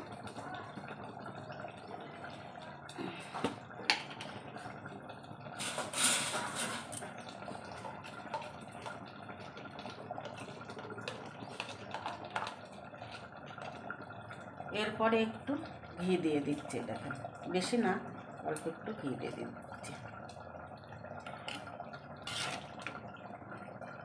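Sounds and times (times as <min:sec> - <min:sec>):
curry bubbling in a pot: 0:00.0 - 0:24.0.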